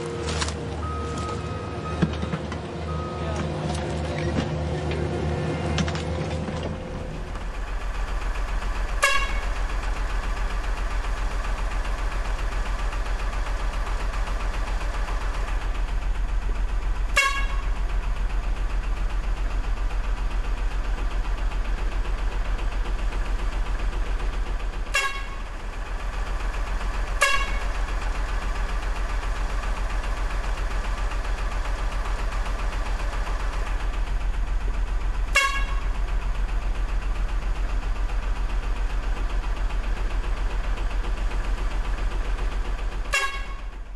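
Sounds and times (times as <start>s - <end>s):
truck engine humming: 0.0s - 43.9s
truck horn toots: 9.0s - 9.5s, 17.1s - 17.7s, 24.9s - 25.4s, 27.2s - 27.7s, 35.3s - 35.9s, 43.1s - 43.7s.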